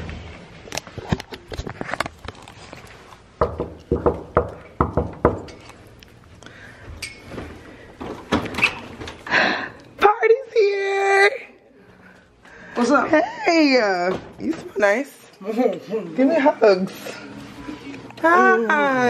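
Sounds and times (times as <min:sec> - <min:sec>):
knuckles knocking on door: 0:03.4 - 0:05.5.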